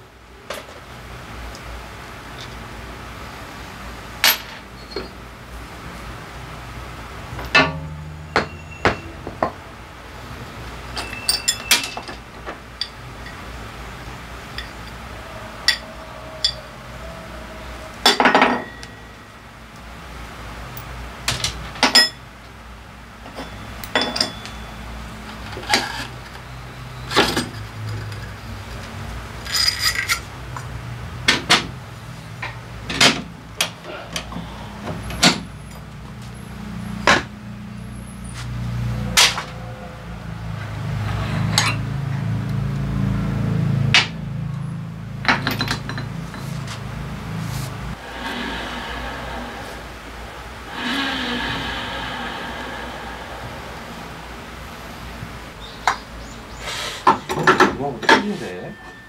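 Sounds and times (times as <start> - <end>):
metal tools and parts clanking: 4.2 - 5.2, 7.3 - 9.6, 10.9 - 13.5, 14.5 - 15.0, 15.6 - 16.6, 18.0 - 19.3, 20.8 - 22.2, 23.2 - 26.4, 29.4 - 30.3, 41.5 - 41.9, 45.2 - 46.7, 57.0 - 59.0
metal parts rattling: 10.9 - 12.2, 29.4 - 30.3.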